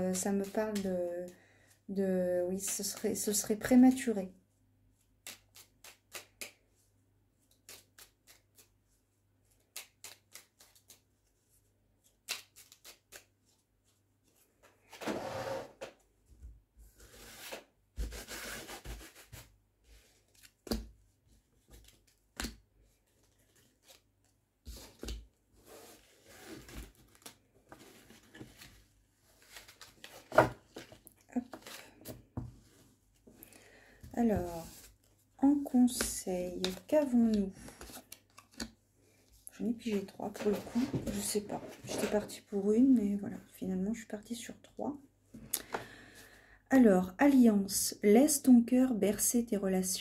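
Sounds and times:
cards sliding on table: 0:14.9 - 0:15.9.

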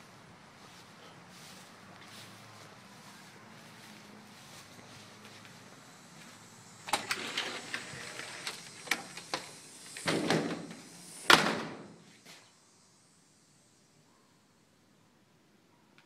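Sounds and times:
door scraping swing: 0:06.8 - 0:11.8
door banging shut: 0:10.0 - 0:11.9.

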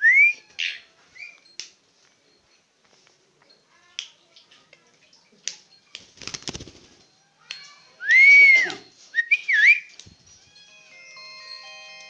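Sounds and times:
bird whistling: 0:00.0 - 0:01.4, 0:08.0 - 0:09.9.

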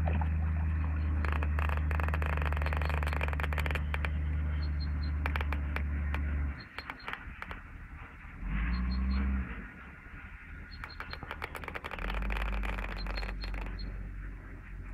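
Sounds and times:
clicks and rattles: 0:00.0 - 0:07.7, 0:10.7 - 0:14.9
low motor hum: 0:00.0 - 0:14.9.

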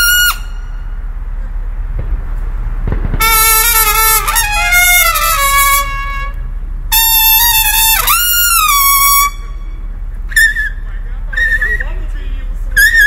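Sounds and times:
low steady rumble: 0:00.0 - 0:13.0
marching band brass horns: 0:02.9 - 0:10.4.

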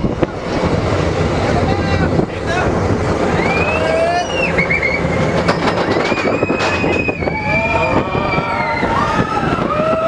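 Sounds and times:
roller coaster train rumbling: 0:00.0 - 0:10.0
high drawn-out squeals: 0:03.2 - 0:10.0.

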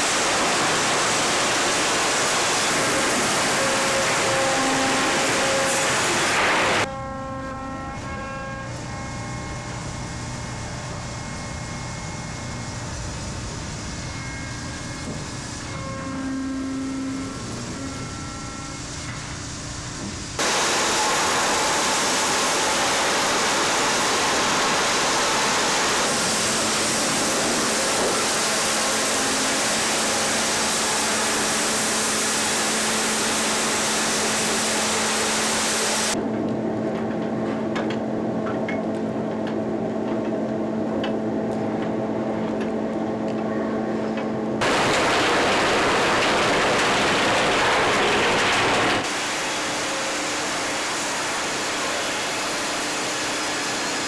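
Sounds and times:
steady machine hum: 0:08.5 - 0:54.0
machinery whining: 0:20.4 - 0:54.0
chain conveyor rushing: 0:44.6 - 0:49.1.

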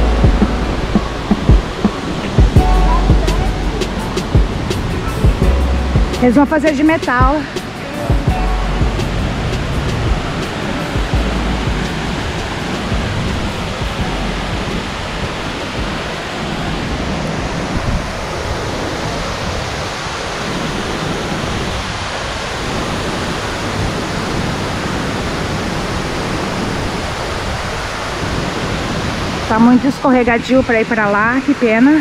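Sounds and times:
waterfall rushing: 0:00.0 - 0:32.0.

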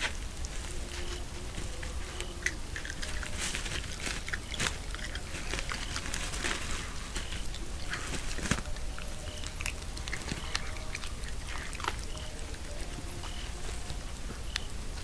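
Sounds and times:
animal chewing bones: 0:00.0 - 0:15.0.

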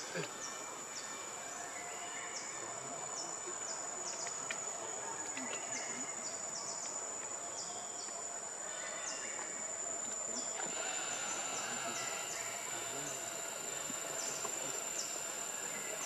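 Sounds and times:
insect drone: 0:00.0 - 0:16.0
descending insect chirps: 0:10.3 - 0:16.0.

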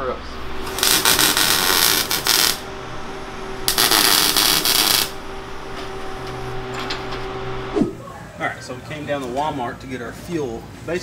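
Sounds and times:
welding arc crackling and hissing: 0:00.0 - 0:07.8
steady hum: 0:00.0 - 0:10.8.

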